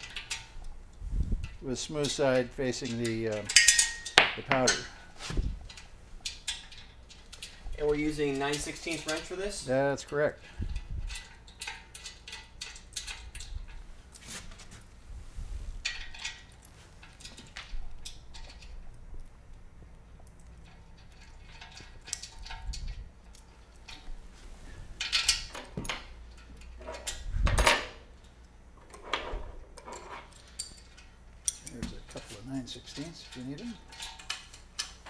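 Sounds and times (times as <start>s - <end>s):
metal hardware clinking: 1.4s - 13.8s, 20.2s - 24.2s, 25.0s - 35.0s.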